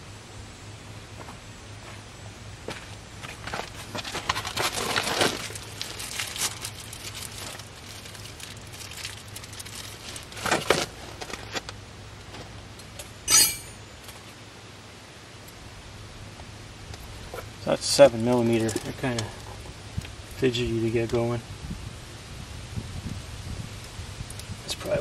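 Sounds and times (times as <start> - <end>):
metal parts clinking: 13.3 - 13.8.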